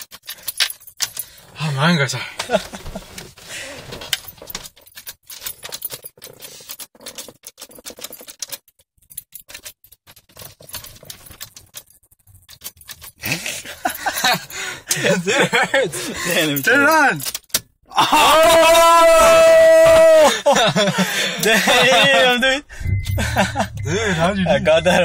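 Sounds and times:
keys clicking in ignition lock: 0.0 - 1.4, 4.0 - 13.3, 16.3 - 17.8.

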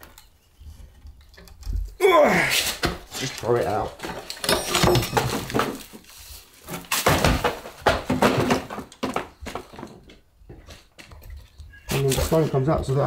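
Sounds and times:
bricks and rubble knocking: 4.0 - 6.0, 6.7 - 10.8.

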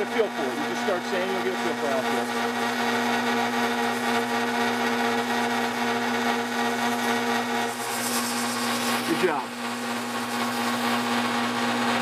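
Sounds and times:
drill press humming: 0.0 - 12.0
sandpaper sanding hiss: 7.7 - 9.4.

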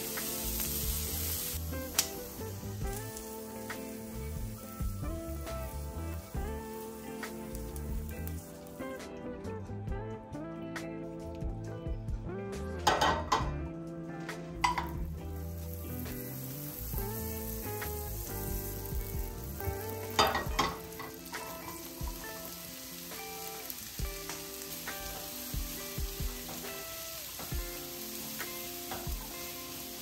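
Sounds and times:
food sizzling in a frying pan: 0.0 - 9.2, 14.2 - 30.0
utensil knocking against pan: 12.8 - 13.5, 14.6 - 15.0, 20.2 - 20.9.

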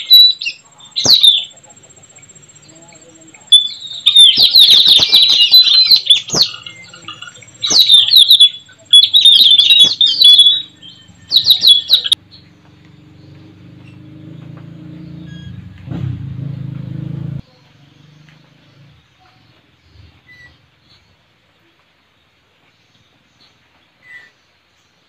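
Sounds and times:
parrots chattering calls: 0.0 - 2.7, 3.5 - 12.2.

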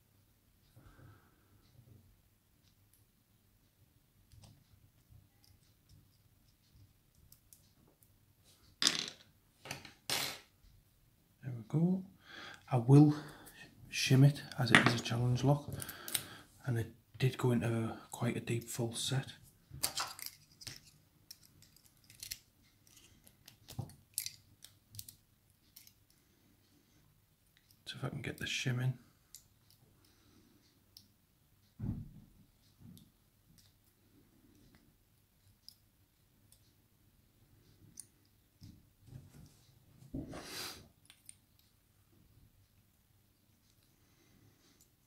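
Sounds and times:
small metal clicks: 19.8 - 26.1.

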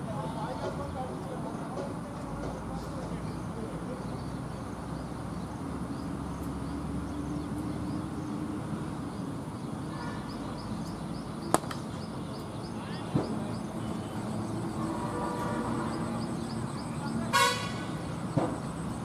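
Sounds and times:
open-air background noise: 0.0 - 19.0
cricket bat striking ball: 11.4 - 11.9.

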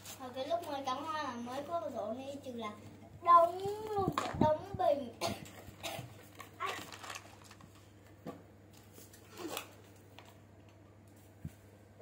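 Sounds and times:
rustling artificial flower stems: 5.4 - 8.0.

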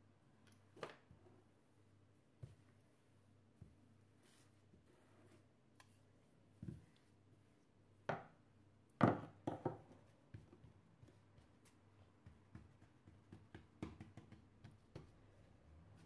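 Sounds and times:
rolling pin knocking on table: 9.0 - 10.7.

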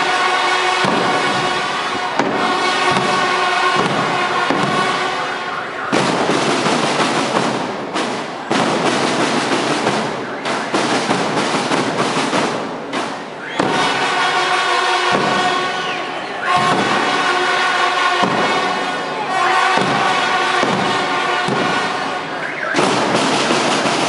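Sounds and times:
horns holding sustained notes: 0.0 - 7.6, 13.3 - 24.0
crowd chatter: 0.0 - 24.0
rattling drum cadence: 5.9 - 14.3, 19.8 - 24.0.

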